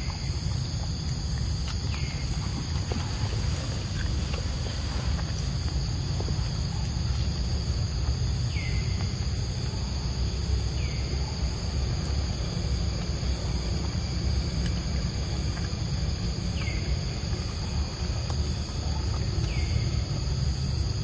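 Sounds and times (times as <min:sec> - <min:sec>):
constant low rumble: 0:00.0 - 0:21.0
insects buzzing: 0:00.0 - 0:21.0.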